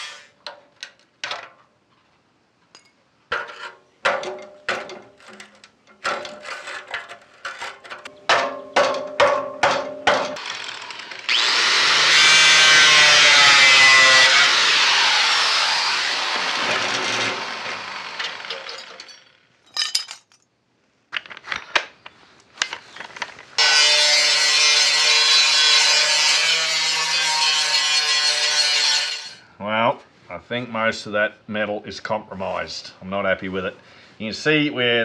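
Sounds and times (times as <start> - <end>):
angle grinder cutting steel: 0.0 - 0.3, 10.4 - 19.3, 23.6 - 29.4.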